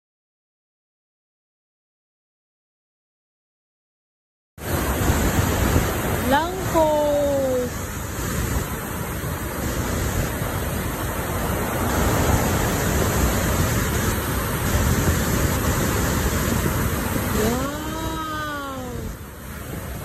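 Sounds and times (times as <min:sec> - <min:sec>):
waterfall rushing: 0:04.6 - 0:20.0.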